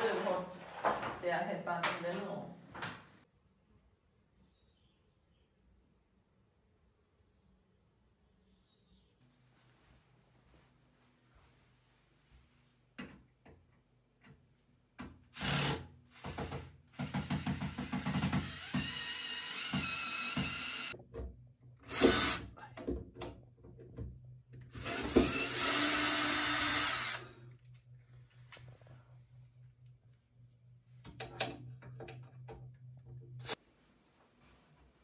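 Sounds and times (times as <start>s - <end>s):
cordless drill driving screws: 15.4s - 21.0s, 21.9s - 22.4s, 24.7s - 27.2s.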